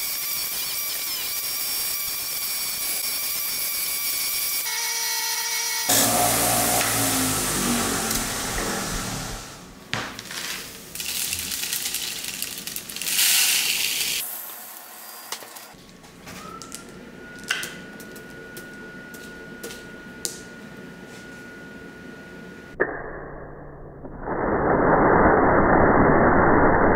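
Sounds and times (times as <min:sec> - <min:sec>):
tumbling media pouring: 0:10.9 - 0:14.3
wire wheel whirring: 0:10.9 - 0:15.8
metal parts clicking: 0:11.0 - 0:14.2.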